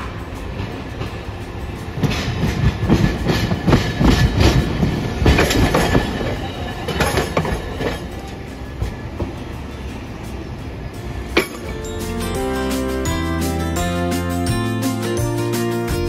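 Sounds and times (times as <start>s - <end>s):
wheels clacking over track: 0.0s - 9.7s
streetcar passing: 0.0s - 16.0s.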